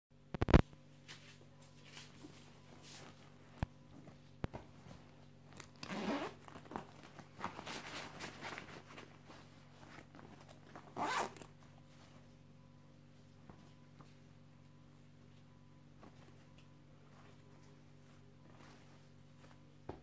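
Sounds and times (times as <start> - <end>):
fabric handling: 1.0 - 20.0
zipper being pulled: 5.7 - 7.0, 10.8 - 11.5.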